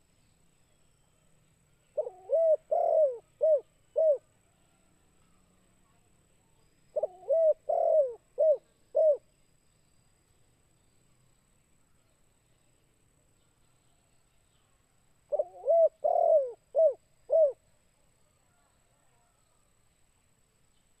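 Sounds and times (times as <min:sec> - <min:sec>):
dove cooing: 0:02.0 - 0:04.3, 0:06.9 - 0:09.2, 0:15.3 - 0:17.6.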